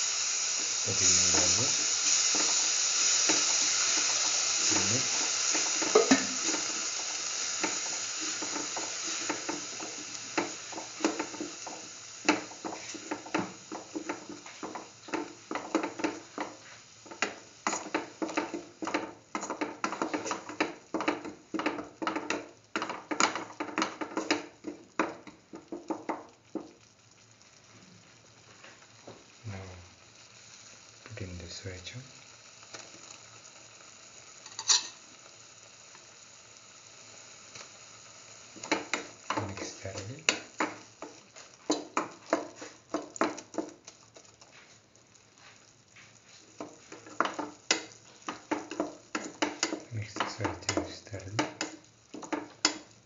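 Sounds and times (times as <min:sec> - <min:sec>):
paste sizzling in a hot pan: 0:00.0 - 0:53.0
utensil scraping and tapping a pan: 0:03.3 - 0:06.8, 0:07.6 - 0:26.8, 0:38.6 - 0:44.7, 0:45.4 - 0:52.9.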